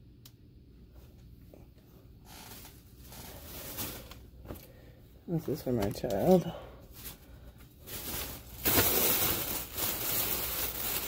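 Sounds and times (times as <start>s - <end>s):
clothing fabric rustling: 2.2s - 4.6s, 5.5s - 11.0s.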